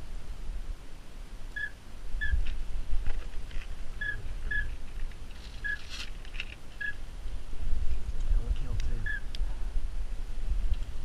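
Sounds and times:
rustle: 0.0s - 11.0s
wind rumble on microphone: 0.0s - 11.0s.

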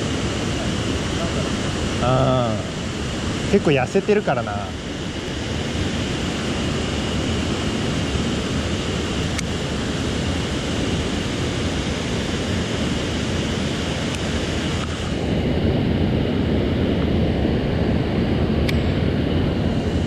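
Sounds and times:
small click: 9.3s - 9.5s, 18.6s - 18.9s.

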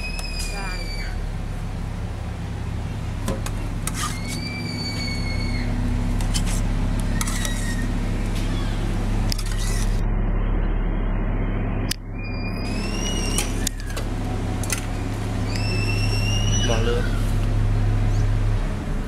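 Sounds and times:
low hum: 0.0s - 19.0s
metal ladle scraping pot: 3.8s - 4.4s, 6.2s - 8.0s, 9.3s - 10.0s.

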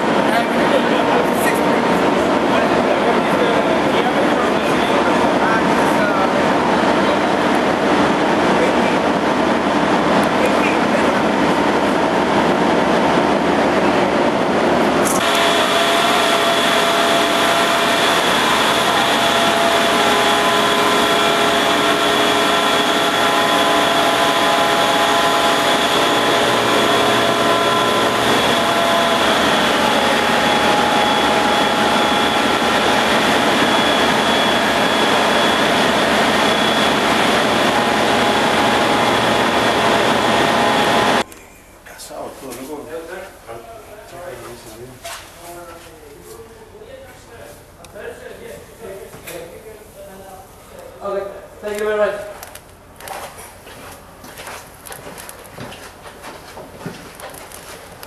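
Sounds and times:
machinery whining tones: 0.0s - 41.6s
engine room machinery din: 0.0s - 42.2s.

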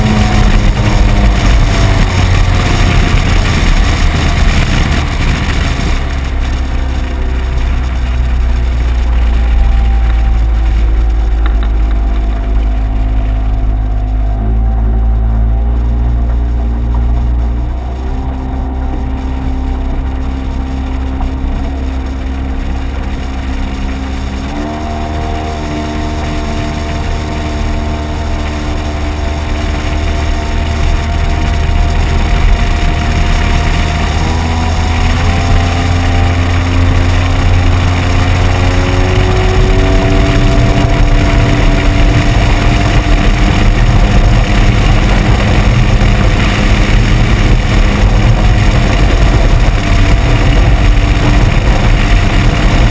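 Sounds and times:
outboard motor: 0.0s - 52.9s
water rushing over hull: 0.0s - 52.9s
wind rumble: 0.0s - 52.9s.

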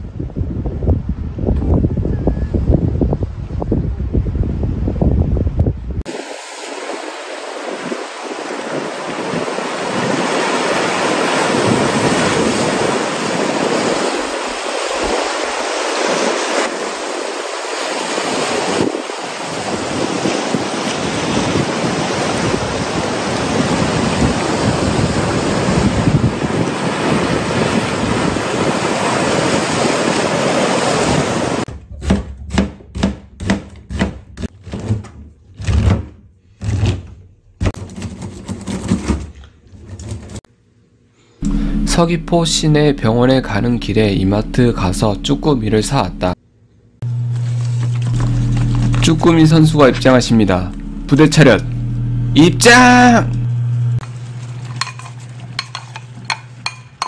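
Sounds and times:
sea waves breaking on rocky shore: 6.1s - 31.7s
knife chopping on cutting board: 32.0s - 34.5s.

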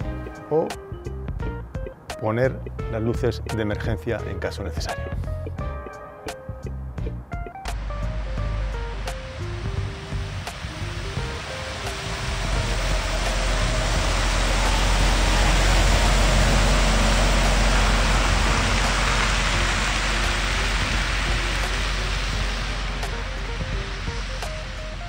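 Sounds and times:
hissing tyre noise: 7.7s - 25.0s
truck driving by: 7.7s - 25.0s.

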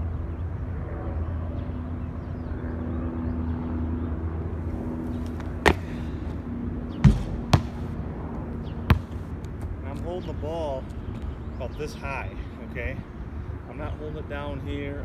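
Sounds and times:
low outdoor hum: 0.0s - 15.0s
basketball bouncing on concrete: 5.2s - 6.3s, 6.9s - 8.0s, 8.8s - 9.6s.

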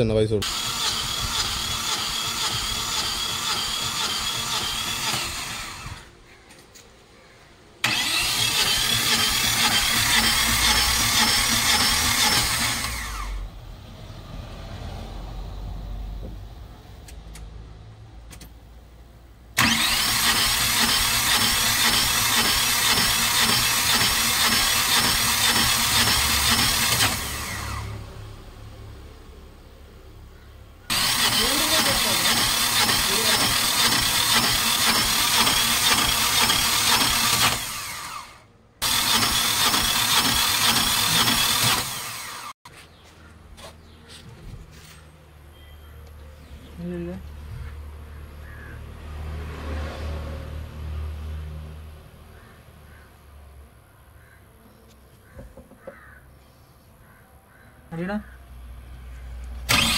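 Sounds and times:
engine starter cranking: 0.4s - 6.1s, 7.8s - 13.5s, 19.6s - 28.0s, 30.9s - 42.6s, 59.7s - 59.9s.

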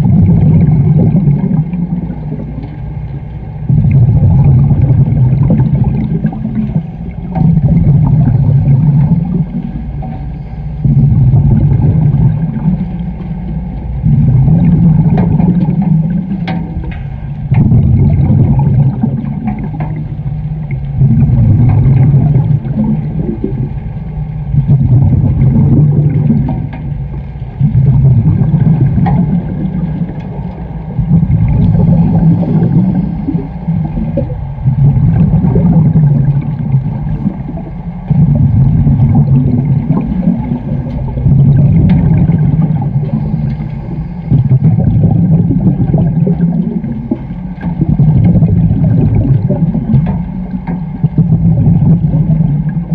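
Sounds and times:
rumbling rush of bubbles: 0.0s - 52.9s
diver breathing through regulator: 30.6s - 35.0s, 42.4s - 45.2s.

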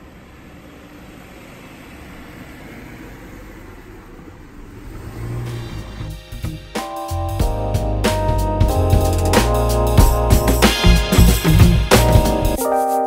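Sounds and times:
car driving past: 0.0s - 6.4s.

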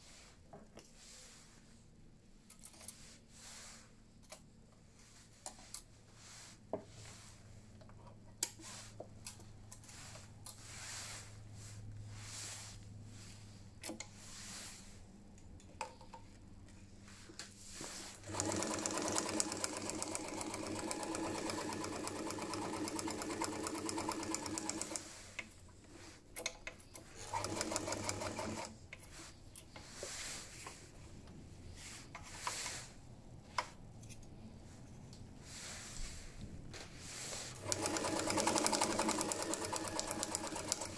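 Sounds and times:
sewing machine stitching: 18.0s - 25.2s, 27.0s - 28.8s, 37.5s - 40.9s
stitch selector dial turning: 37.6s - 40.9s.

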